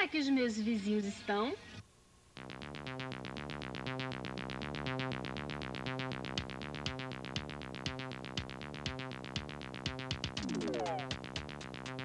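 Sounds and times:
background music: 0:02.4 - 0:12.0
music beat: 0:02.4 - 0:12.0.

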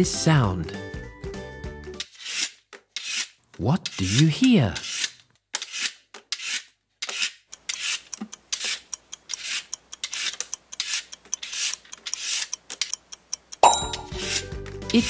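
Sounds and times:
vegetable peeler scraping: 0:02.0 - 0:12.9, 0:14.0 - 0:14.6.

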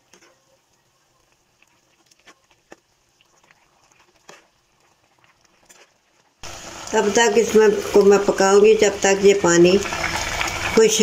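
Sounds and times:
metal spoon stirring in a pan: 0:00.0 - 0:06.4.

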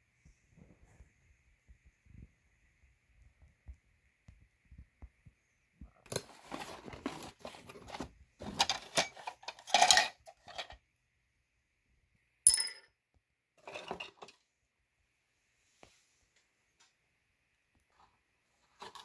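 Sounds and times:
plastic parts and cardboard rustling: 0:05.9 - 0:10.8, 0:13.6 - 0:14.4, 0:17.9 - 0:19.0
sharp metallic clink: 0:12.5 - 0:12.9.

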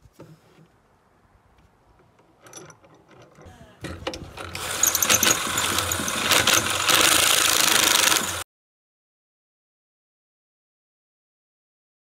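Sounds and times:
power drill boring wood: 0:03.4 - 0:08.4.

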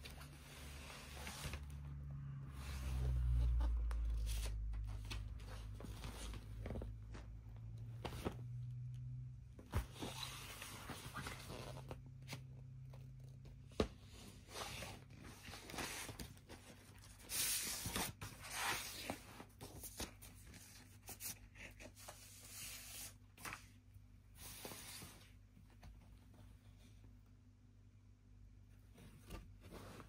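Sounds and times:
paper booklet rustling and sliding: 0:00.0 - 0:08.6, 0:09.6 - 0:12.9, 0:13.6 - 0:25.4.

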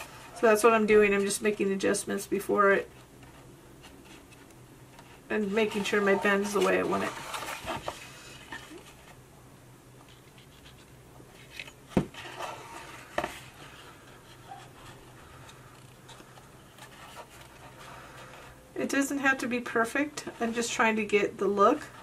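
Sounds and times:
paper box rustling: 0:05.1 - 0:09.2, 0:10.0 - 0:18.6.

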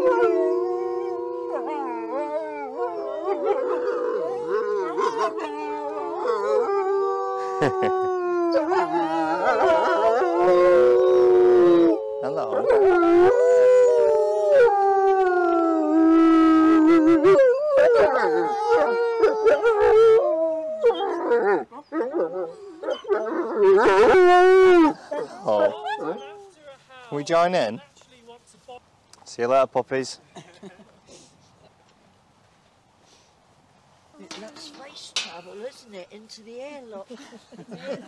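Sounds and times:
wolves howling: 0:00.0 - 0:26.6.

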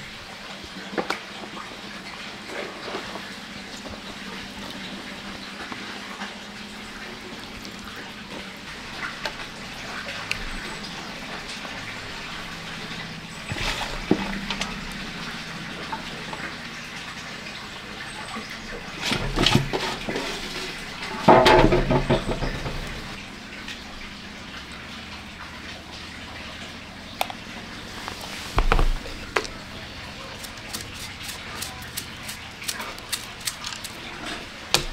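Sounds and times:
wet squelching of hands rubbing fish: 0:00.6 - 0:21.3, 0:24.4 - 0:34.9
handling noises in metal pot: 0:19.0 - 0:23.2.

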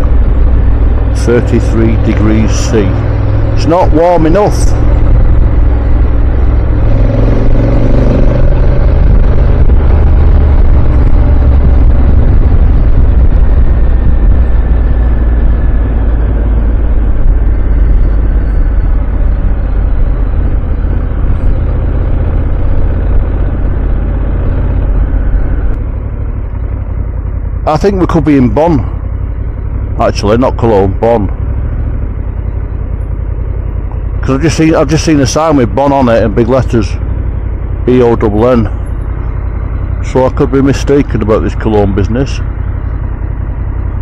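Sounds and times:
wind rumble on microphone: 0:00.0 - 0:25.8
motorcycle engine running: 0:00.0 - 0:44.0.

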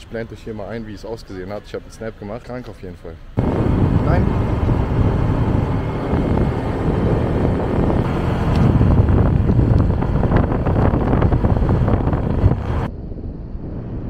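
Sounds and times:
road noise: 0:00.0 - 0:12.9
motor scooter running: 0:03.4 - 0:12.9
wind rumbling on microphone: 0:03.4 - 0:14.0.

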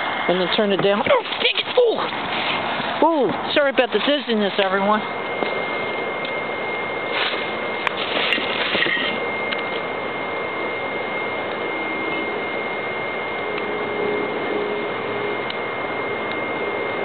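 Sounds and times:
wood fire crackling: 0:00.0 - 0:11.7
stove fan running: 0:00.0 - 0:17.0.

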